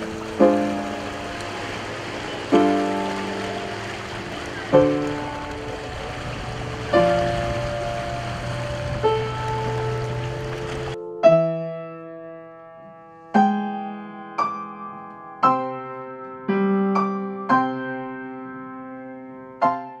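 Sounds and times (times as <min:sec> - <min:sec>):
slow piano chords: 0:00.0 - 0:20.0.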